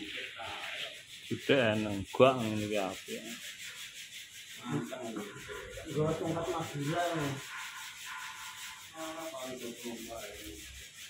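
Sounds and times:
paintbrush rubbing on steel: 0.0 - 11.0.

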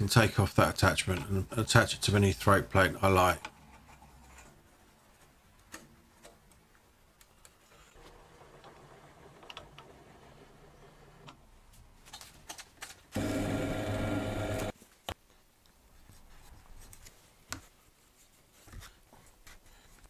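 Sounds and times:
drill press boring through plywood: 13.2 - 14.7.

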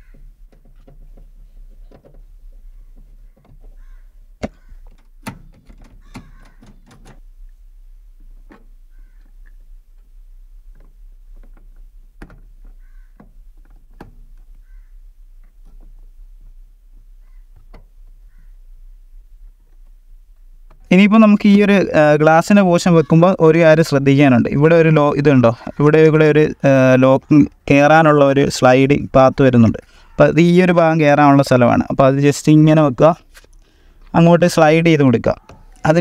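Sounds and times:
bird calling: 2.6 - 5.0, 6.0 - 6.9, 8.8 - 9.6, 12.6 - 13.3, 14.5 - 15.2, 17.1 - 18.8.

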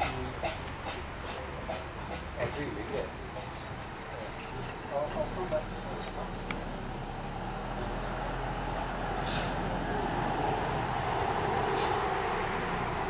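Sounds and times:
steam locomotive rumble and hiss: 0.0 - 6.8, 8.1 - 13.0
steam puffs: 9.2 - 9.7, 11.7 - 12.1.

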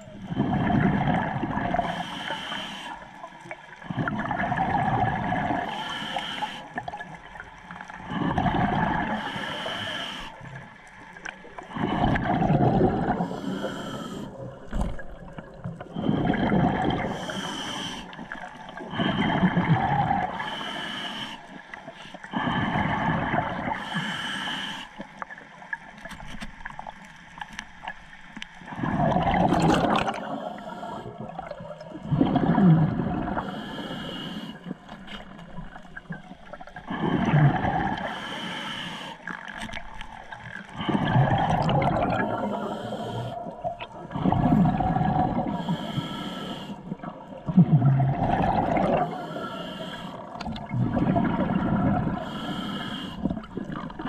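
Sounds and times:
exhaled bubbles rushing: 0.0 - 1.9, 3.8 - 5.7, 8.0 - 9.2, 11.7 - 13.4, 14.5 - 17.3, 28.7 - 33.5, 35.4 - 38.1, 39.7 - 45.6, 46.9 - 49.2, 50.2 - 52.3
regulator hiss on inhale: 1.8 - 3.2, 5.6 - 6.8, 9.0 - 10.6, 13.1 - 14.5, 17.0 - 19.4, 20.3 - 25.3, 30.2 - 31.2, 33.4 - 35.4, 37.9 - 39.7, 42.2 - 43.7, 45.4 - 47.0, 49.0 - 50.4, 52.1 - 53.4.

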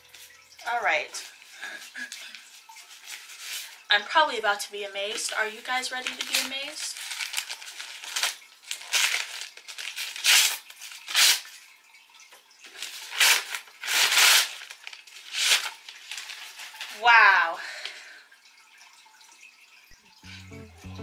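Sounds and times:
paper wrapping crinkling: 1.2 - 3.9, 5.0 - 11.6, 12.7 - 17.1.

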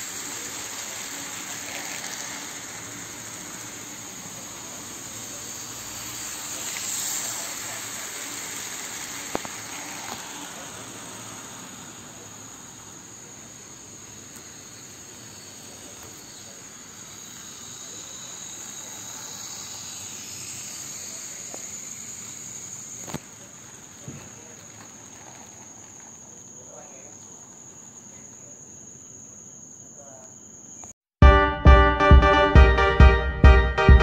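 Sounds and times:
model train wagons rolling: 0.0 - 13.6, 23.1 - 27.3
high-pitched whine: 0.0 - 23.2.

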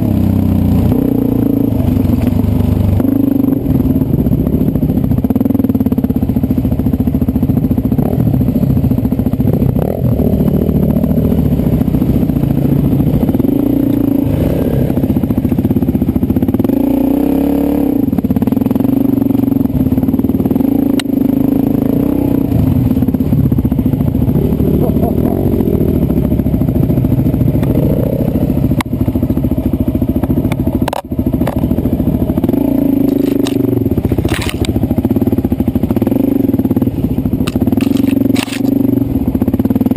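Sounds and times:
dirt bike engine revving: 0.0 - 6.6, 7.4 - 39.9
bike knocking over rocks: 34.2 - 34.7.

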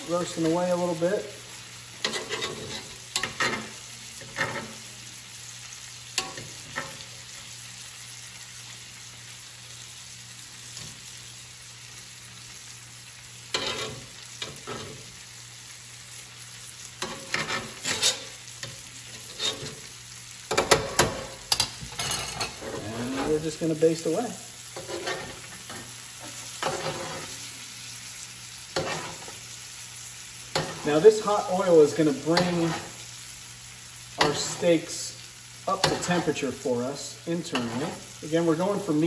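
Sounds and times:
butter sizzling in a skillet: 0.0 - 39.0
metal tongs scraping a pan: 1.9 - 4.9, 6.2 - 7.4, 13.5 - 15.2, 16.9 - 27.6, 28.7 - 29.5, 30.5 - 33.1, 34.1 - 38.9.

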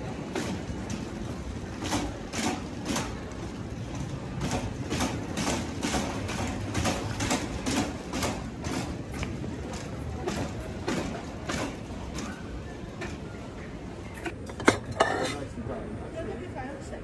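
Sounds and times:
trolley frame rattling: 0.0 - 13.4
shopping trolley wheels rumbling: 0.0 - 17.0.

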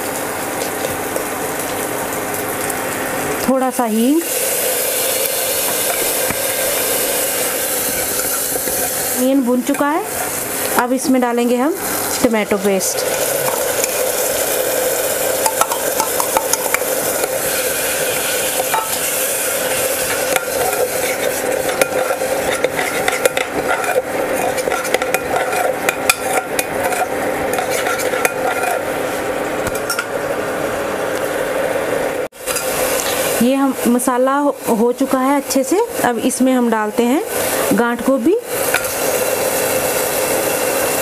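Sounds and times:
paste sizzling in hot oil: 0.8 - 29.8, 32.4 - 41.0
spatula scraping metal pot: 7.8 - 10.3, 18.6 - 28.9.

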